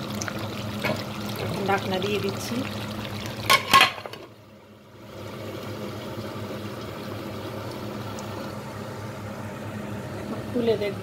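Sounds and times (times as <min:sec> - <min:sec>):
metal lid clanking on pot: 0:03.4 - 0:04.3.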